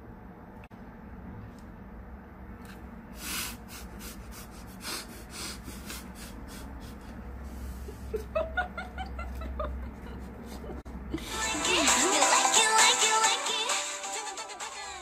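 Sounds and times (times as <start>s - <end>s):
woman's stifled laughter: 7.6s - 11.3s.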